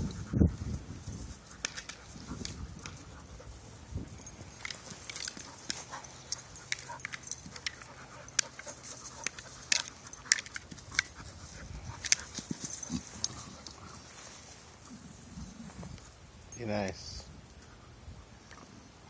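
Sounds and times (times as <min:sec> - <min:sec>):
dog playing with a ball: 0:01.2 - 0:14.2.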